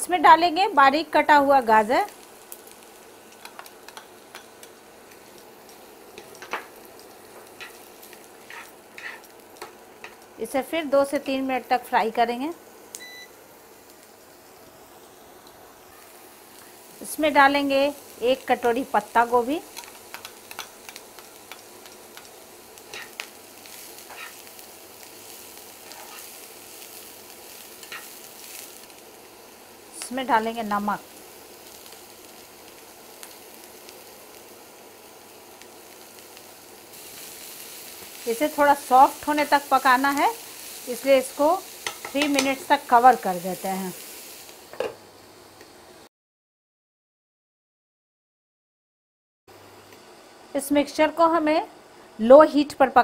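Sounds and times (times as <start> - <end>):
vegetables sizzling in oil: 0.0 - 46.1
spatula scraping a pan: 8.4 - 9.3, 22.9 - 23.2, 24.0 - 24.4, 25.8 - 26.3.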